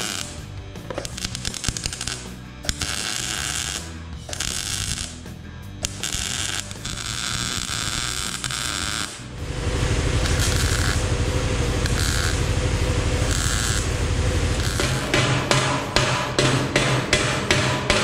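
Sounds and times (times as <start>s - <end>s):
welder crackling: 0.0s - 18.0s
low pulsing hum: 9.3s - 18.0s.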